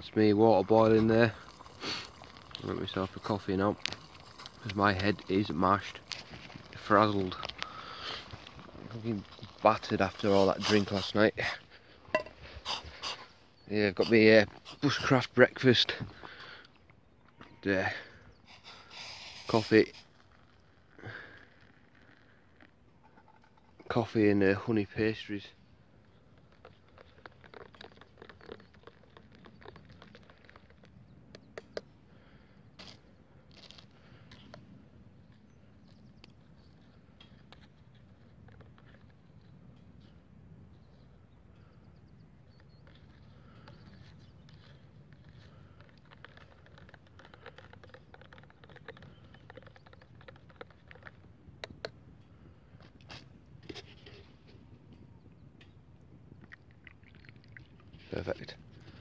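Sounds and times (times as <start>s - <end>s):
spoon stirring in a cup: 0.8s - 7.6s, 26.5s - 30.8s, 42.8s - 51.9s.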